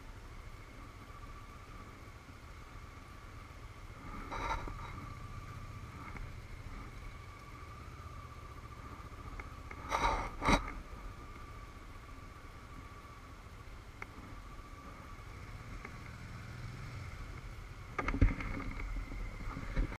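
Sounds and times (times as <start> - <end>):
faint steady whine: 0.0 - 20.0
motorcycle engine running low: 2.5 - 13.3.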